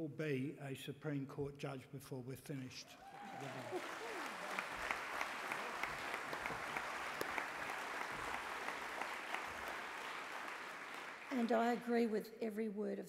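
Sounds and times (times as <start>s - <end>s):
audience applauding: 3.0s - 11.8s.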